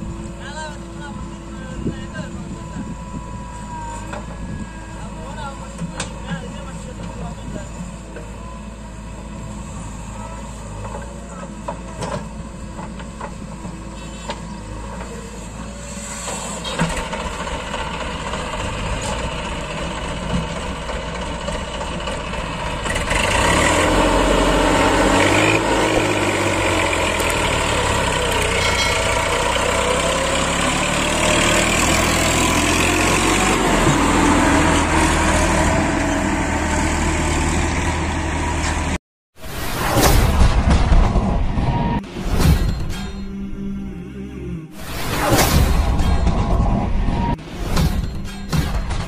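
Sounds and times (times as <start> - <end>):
tractor diesel engine under load: 0.0 - 39.0.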